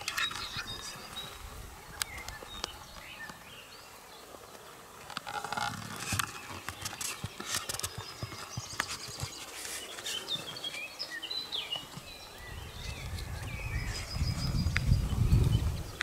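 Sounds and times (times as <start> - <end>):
soft rustles and clicks: 5.0 - 10.9
low wind rumble: 12.4 - 16.0.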